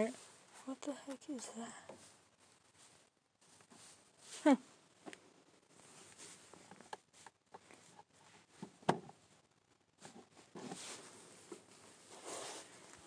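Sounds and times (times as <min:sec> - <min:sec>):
fabric rubbing on microphone: 0:02.0 - 0:04.8, 0:10.0 - 0:13.0.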